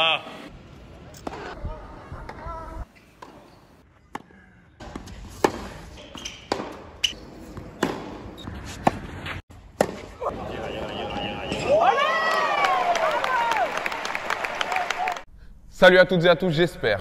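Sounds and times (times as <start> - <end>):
rackets hitting tennis ball: 2.3 - 11.7
ball bouncing on court: 4.1 - 6.9
faint crowd ambience: 10.0 - 12.8.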